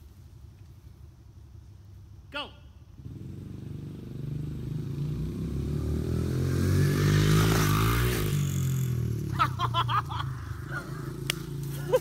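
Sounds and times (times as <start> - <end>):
dirt bike engine revving: 3.0 - 12.0.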